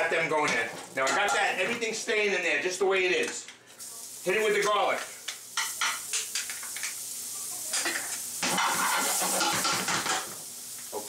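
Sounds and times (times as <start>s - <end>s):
garlic sizzling in a frying pan: 0.0s - 2.0s, 3.7s - 11.0s
utensil scraping a pan: 7.9s - 10.2s.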